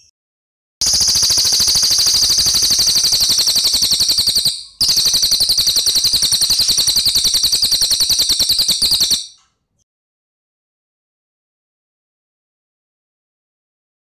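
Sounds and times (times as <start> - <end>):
bird rolling trill: 0.8 - 9.4.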